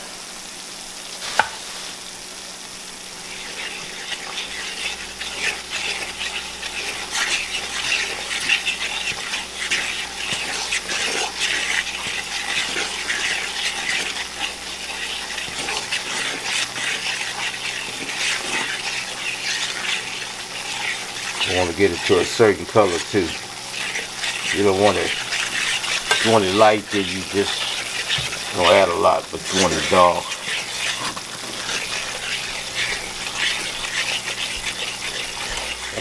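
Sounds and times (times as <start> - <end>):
flour sizzling in hot oil: 0.0 - 36.0
tap on skillet: 1.2 - 1.7
fork scraping pan: 3.2 - 36.0.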